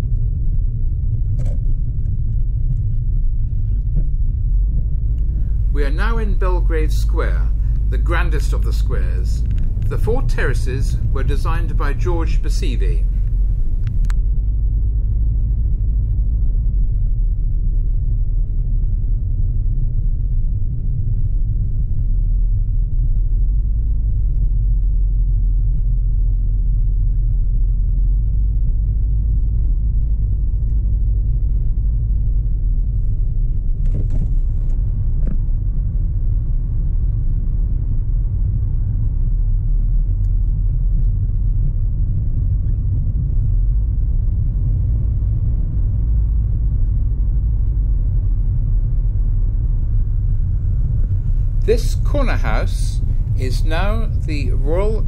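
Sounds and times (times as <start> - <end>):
car engine and road noise: 4.7 - 14.2.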